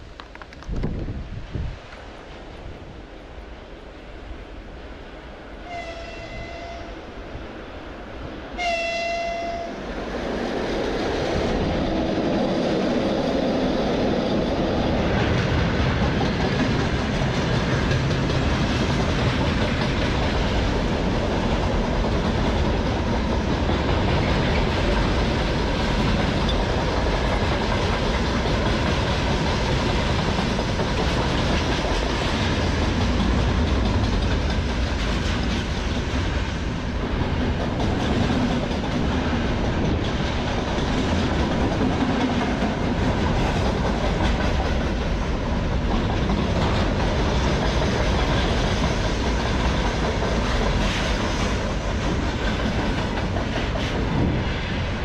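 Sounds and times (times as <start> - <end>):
train wheels on rails: 0.0 - 55.0
train horn blasts: 5.6 - 7.1, 8.6 - 9.9.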